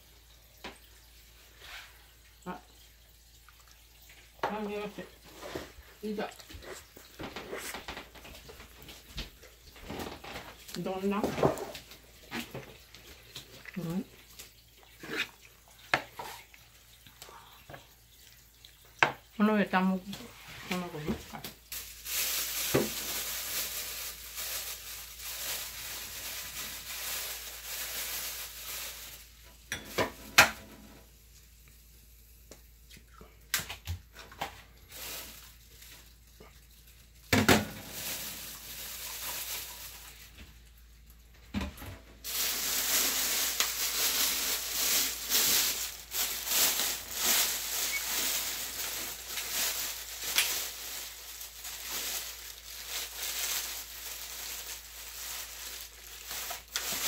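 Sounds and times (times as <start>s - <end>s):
food sizzling in a frying pan: 21.3s - 31.0s.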